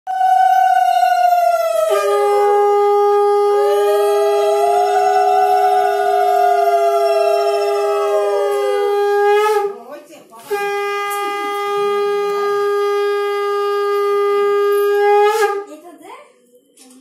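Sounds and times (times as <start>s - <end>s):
conch shell blasts: 1.8s - 9.8s, 10.4s - 15.7s.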